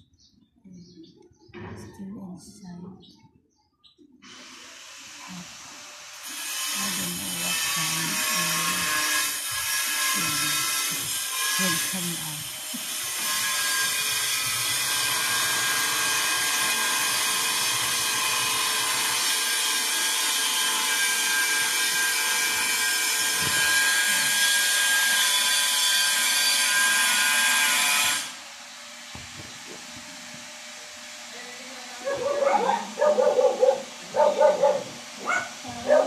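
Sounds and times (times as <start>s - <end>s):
power tool running: 4.2s - 31.4s.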